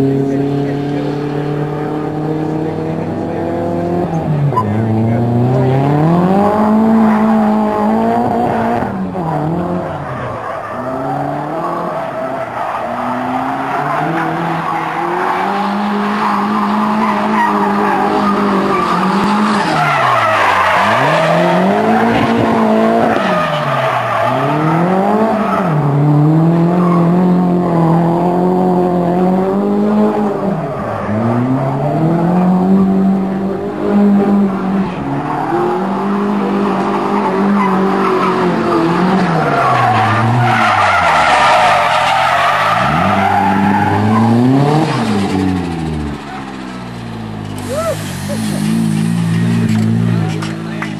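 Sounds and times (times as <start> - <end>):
car engine revving: 0.0 - 50.9
tyres squealing on tarmac: 9.2 - 25.9, 36.5 - 50.9.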